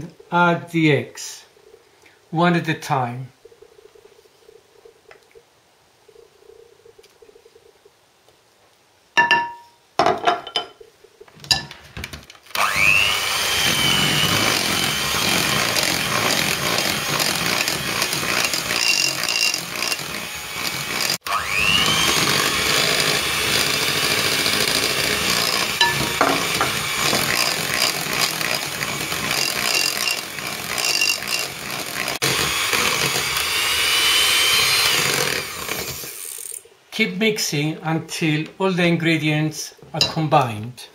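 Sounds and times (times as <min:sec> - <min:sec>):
electric hand mixer whirring: 0:12.5 - 0:36.6.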